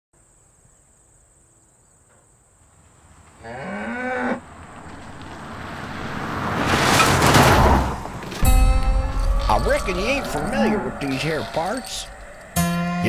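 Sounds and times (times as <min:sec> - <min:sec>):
cow mooing: 0:03.4 - 0:04.4, 0:08.4 - 0:13.0
rushing noise: 0:04.6 - 0:13.0
high insect trill: 0:08.4 - 0:13.0.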